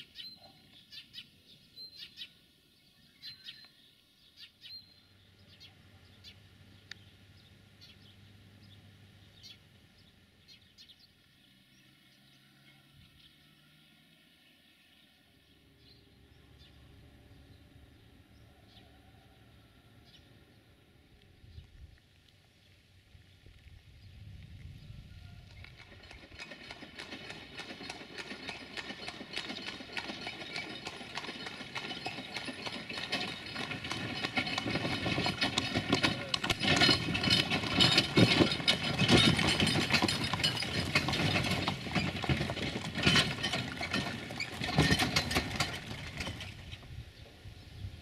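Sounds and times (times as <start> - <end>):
hooves clip-clopping on concrete: 23.4 - 46.4
wooden carts rattling: 25.4 - 47.0.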